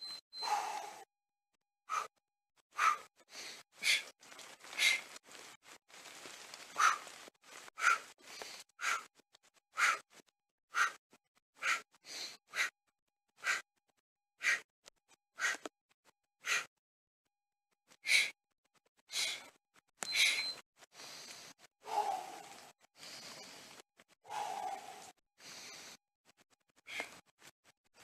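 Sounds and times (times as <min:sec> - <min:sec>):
man breathing hard: 0:01.9 - 0:02.2, 0:02.8 - 0:05.2, 0:07.8 - 0:09.1, 0:09.8 - 0:10.0, 0:10.7 - 0:11.0, 0:11.6 - 0:12.7, 0:13.4 - 0:13.6, 0:14.4 - 0:14.7, 0:15.4 - 0:15.7, 0:16.4 - 0:16.7, 0:18.0 - 0:18.4, 0:19.1 - 0:19.5, 0:20.1 - 0:26.0, 0:26.9 - 0:27.2.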